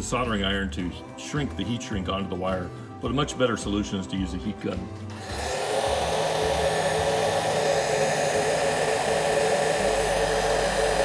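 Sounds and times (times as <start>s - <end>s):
heat gun fan whine: 5.1s - 11.0s.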